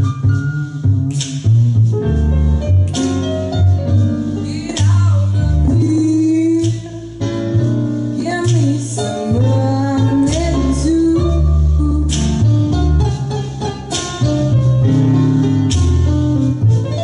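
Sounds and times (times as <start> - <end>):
backing track with bass and guitar: 0.0 - 17.0
woman singing into microphone: 4.5 - 7.2, 8.2 - 12.5.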